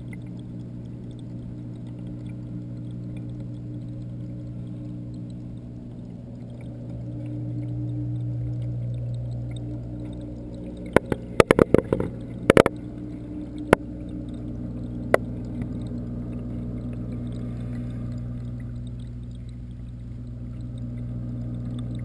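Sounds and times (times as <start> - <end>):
aquarium pumps humming: 0.0 - 22.0
water movement: 0.0 - 22.0
sharp clicks and knocks: 10.8 - 12.9.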